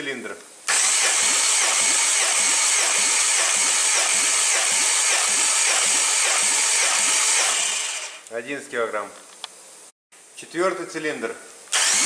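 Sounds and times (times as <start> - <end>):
engine cranking on starter: 11.8 - 12.0.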